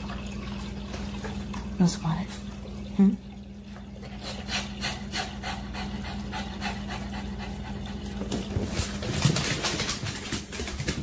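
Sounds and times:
small dog panting: 4.2 - 8.4.

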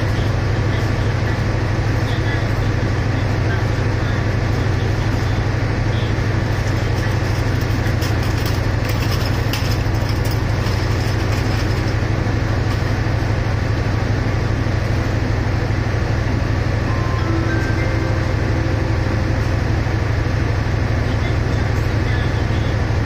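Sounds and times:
diesel locomotive idling: 0.0 - 23.0.

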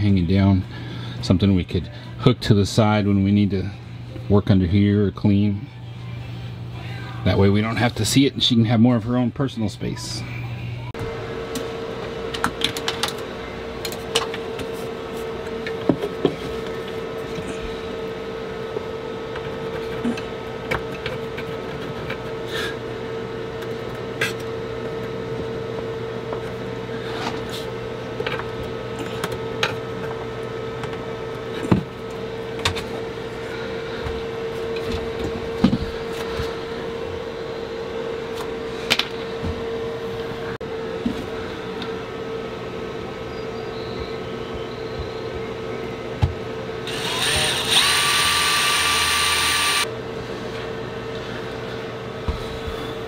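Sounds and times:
electrical hum: 0.0 - 53.0.

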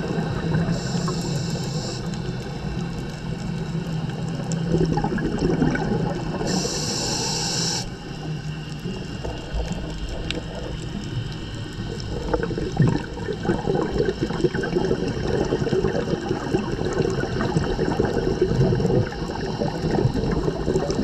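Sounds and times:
exhaled bubbles rumbling: 0.0 - 21.0
steady low hum: 0.0 - 21.0
regulator inhale hiss: 0.6 - 2.7, 6.4 - 8.4.

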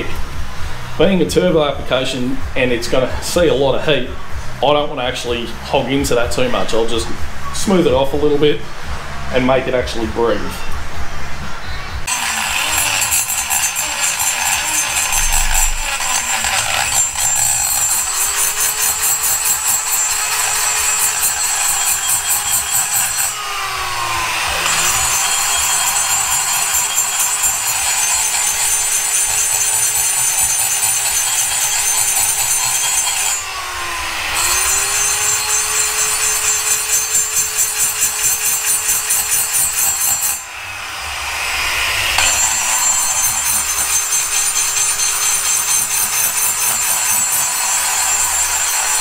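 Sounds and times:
die grinder high whine: 12.1 - 49.0.

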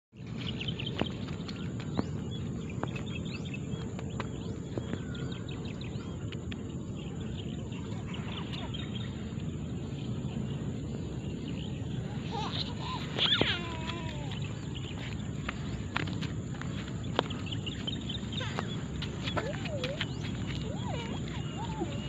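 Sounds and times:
bird chirps: 16.6 - 22.0.

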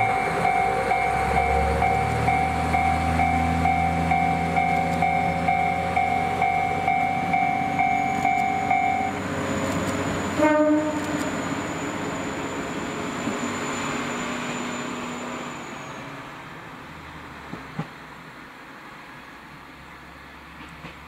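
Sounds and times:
electronic warning bell beeps: 0.0 - 9.2
diesel railcar engine running: 0.0 - 21.0
train horn blast: 10.3 - 11.2.

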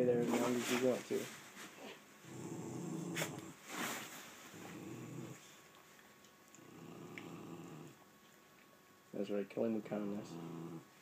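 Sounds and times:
dog growling low: 2.2 - 3.6, 4.5 - 5.6, 6.6 - 8.0, 10.2 - 11.0.

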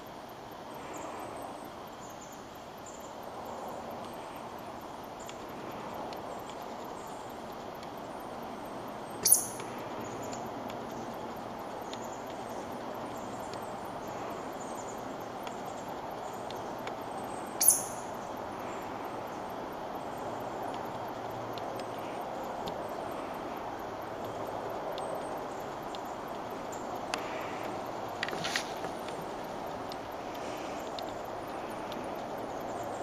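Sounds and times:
outdoor background hiss: 0.0 - 33.0
sharp high-pitched click: 9.2 - 9.7, 17.6 - 18.0
faint high bird chirps: 9.2 - 11.1, 15.6 - 18.3.

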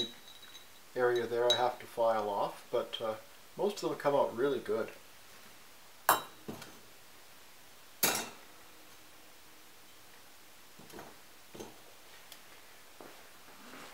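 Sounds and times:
glass clink: 0.0 - 1.8, 6.1 - 6.6, 8.0 - 8.4.

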